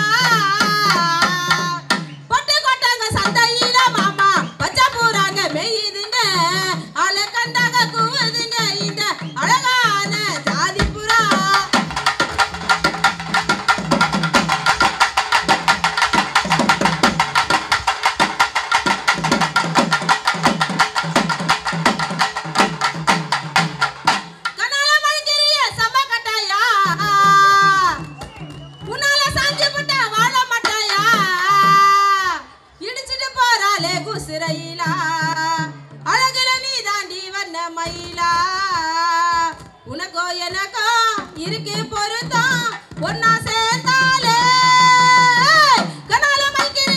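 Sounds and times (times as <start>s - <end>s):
woman singing through a microphone: 0.0s - 11.9s, 24.6s - 28.1s, 28.8s - 46.9s
folk band drum beats: 0.0s - 46.9s
rapid sharp drum strokes: 6.1s - 24.8s.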